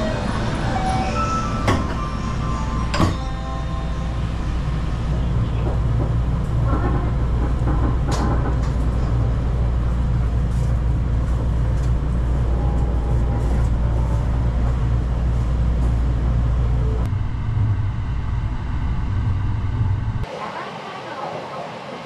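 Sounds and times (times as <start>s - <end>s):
train interior rumble and hum: 0.0s - 22.0s.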